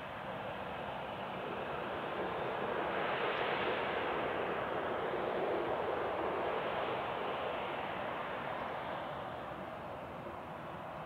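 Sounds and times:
jet engines rushing at taxi: 0.0 - 11.0.

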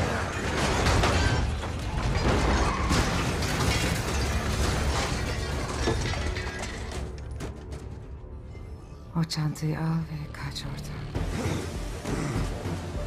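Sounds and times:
breaking glass: 0.0 - 7.4
crunching metal: 0.0 - 8.0
rattling debris: 0.0 - 8.0
film music score: 3.9 - 13.0.

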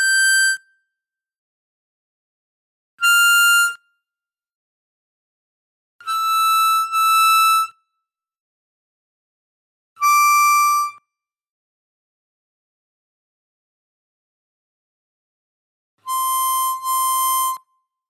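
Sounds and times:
harmonica playing slow melody: 6.1 - 7.7, 16.0 - 17.6.

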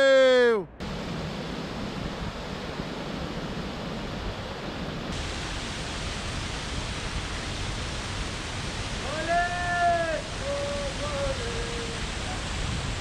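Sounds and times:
waterfall rushing over rocks: 5.0 - 13.0.

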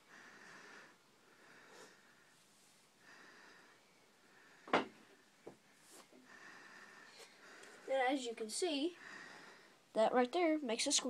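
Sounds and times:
faint breathing: 0.0 - 9.9.

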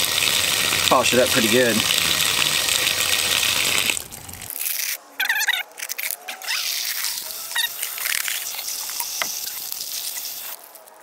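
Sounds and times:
water splashing from spigot: 0.0 - 4.5.

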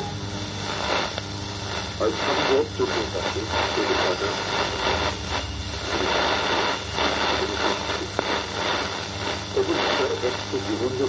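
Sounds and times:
low hum: 0.0 - 11.0
radio static and hiss: 0.0 - 11.0
faint radio voice: 2.0 - 4.8, 7.2 - 8.3, 9.5 - 11.0.

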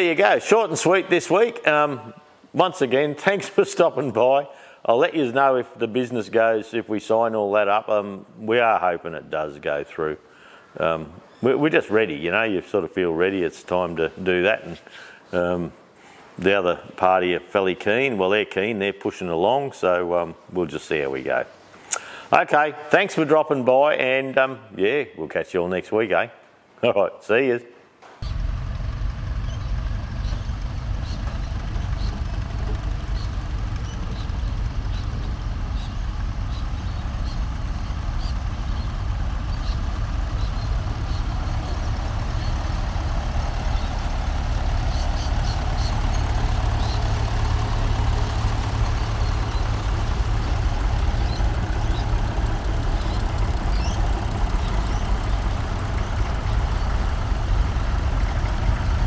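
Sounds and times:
tractor engines rumbling: 28.2 - 59.0.

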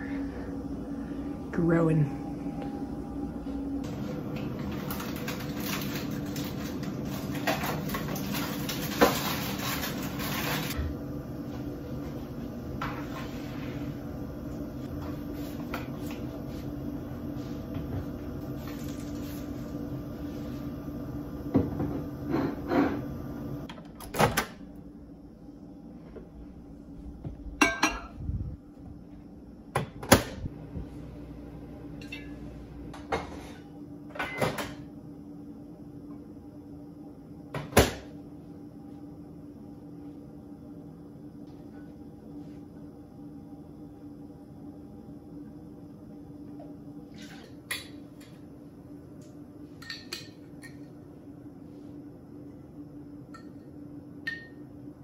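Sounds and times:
steady low hum: 0.0 - 55.0
cupboard doors opening and shutting: 23.9 - 24.6.

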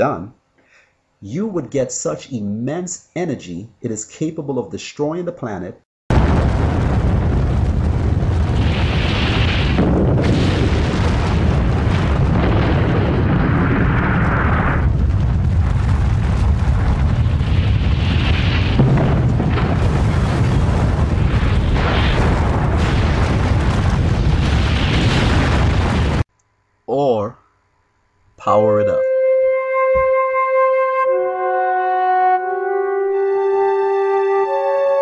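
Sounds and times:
explosion rumbling roar: 6.1 - 26.3.

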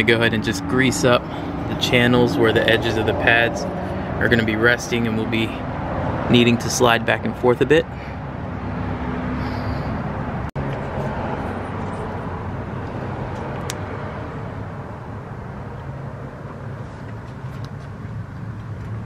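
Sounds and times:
low mechanical drone: 0.0 - 6.4.

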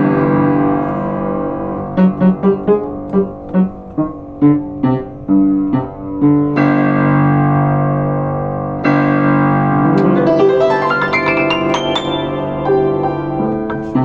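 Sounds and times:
upright piano playing: 0.0 - 14.0.

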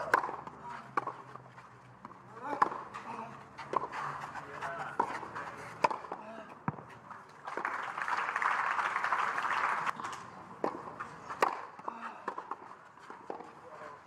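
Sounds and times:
tennis ball hits: 0.0 - 1.3, 2.0 - 2.9, 3.6 - 4.0, 4.6 - 6.8, 9.9 - 13.5
crowd applauding: 7.4 - 10.0.

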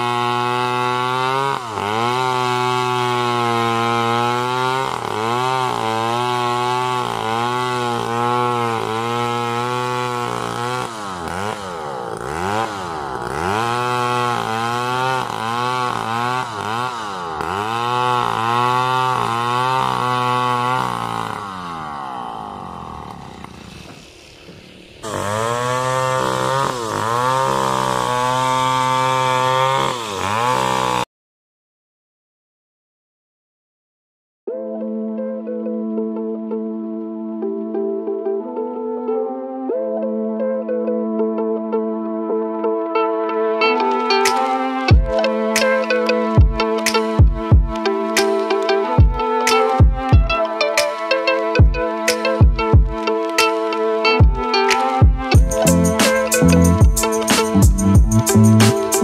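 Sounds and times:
chainsaw cutting wood: 0.0 - 31.1, 43.0 - 59.0.

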